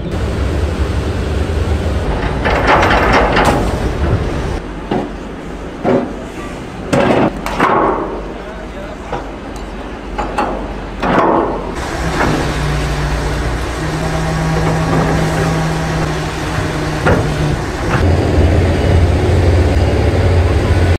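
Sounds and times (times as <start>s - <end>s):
vehicle engine running: 0.0s - 4.6s, 11.8s - 20.9s.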